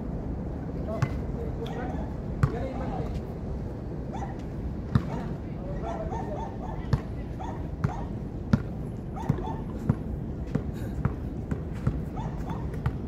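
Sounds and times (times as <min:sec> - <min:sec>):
basketball bouncing on hard court: 0:06.9 - 0:07.2, 0:07.8 - 0:12.1, 0:12.7 - 0:13.0.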